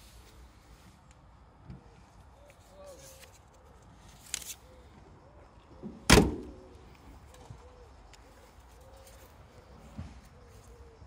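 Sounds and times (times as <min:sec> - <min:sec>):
car door slamming shut: 0:06.1 - 0:06.6.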